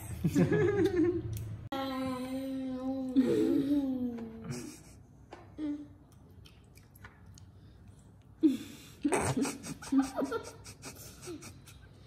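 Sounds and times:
child's voice: 0:01.7 - 0:04.5
child chewing and smacking: 0:06.0 - 0:08.4.

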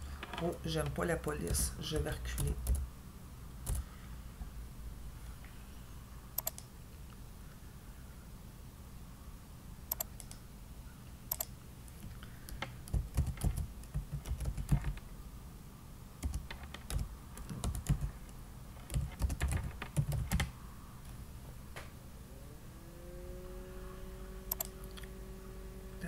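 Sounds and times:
typing on keyboard: 0:01.5 - 0:02.8, 0:06.4 - 0:06.7, 0:11.3 - 0:11.5, 0:12.5 - 0:15.0, 0:16.2 - 0:20.5
sharp clicks: 0:06.4 - 0:06.7, 0:09.9 - 0:10.4, 0:11.3 - 0:15.0, 0:24.5 - 0:25.1.

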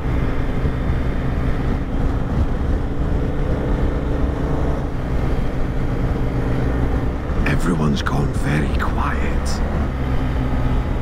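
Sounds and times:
motorcycle engine cruising: 0:00.0 - 0:07.6
wind rush on microphone: 0:00.0 - 0:07.6.

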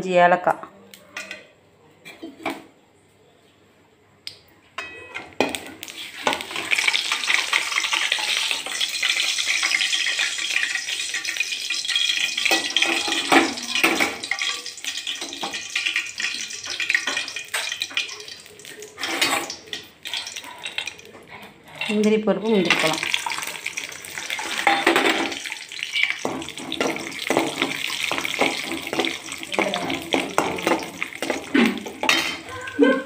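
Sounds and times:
ghee sizzling in a pan: 0:05.4 - 0:21.2, 0:21.9 - 0:32.6.

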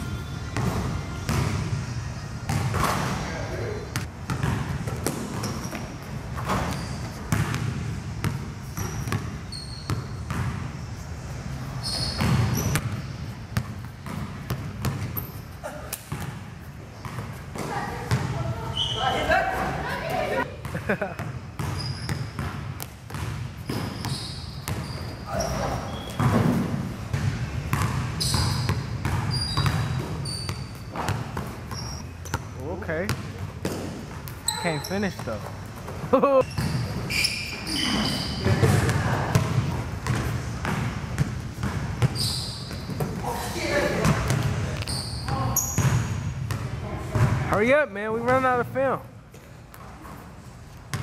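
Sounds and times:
sneaker squeaks: 0:00.0 - 0:03.3, 0:03.9 - 0:47.4
basketball bouncing on court: 0:00.5 - 0:01.8, 0:02.5 - 0:03.2, 0:03.9 - 0:10.7, 0:11.9 - 0:15.3, 0:16.0 - 0:18.6, 0:20.6 - 0:37.2, 0:37.8 - 0:43.3, 0:43.9 - 0:47.6.

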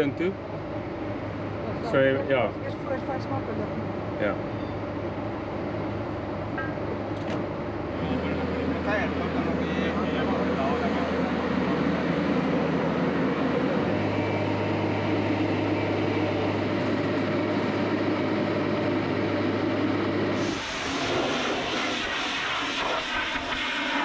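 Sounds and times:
lift engine droning: 0:00.0 - 0:24.0
pressure washer spraying: 0:20.4 - 0:24.0.

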